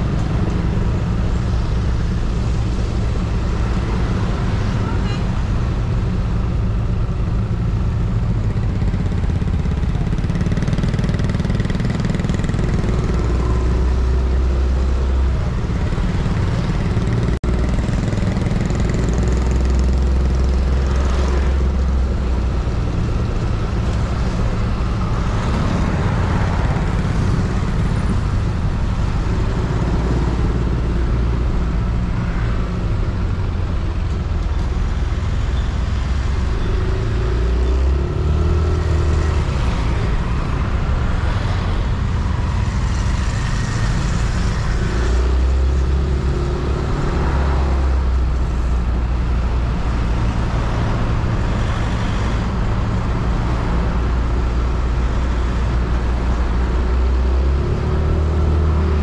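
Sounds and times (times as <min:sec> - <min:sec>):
road noise: 0:00.0 - 0:59.0
scooter engine: 0:07.6 - 0:13.6.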